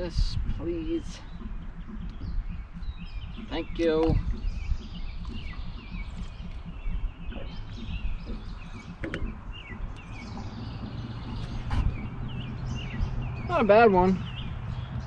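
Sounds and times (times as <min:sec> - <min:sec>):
birds chirping: 0:00.0 - 0:15.0
low background rumble: 0:00.0 - 0:15.0.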